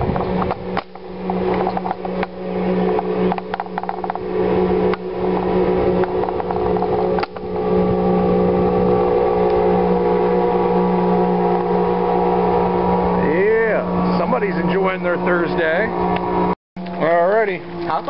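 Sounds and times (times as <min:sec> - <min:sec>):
outboard motors running: 0:00.0 - 0:18.0.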